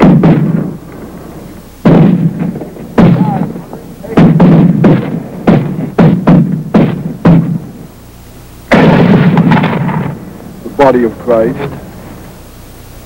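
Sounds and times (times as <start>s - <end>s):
gunshots: 0.0s - 7.9s, 8.7s - 11.8s
heavy rumbling blast: 0.0s - 8.0s, 8.7s - 12.6s.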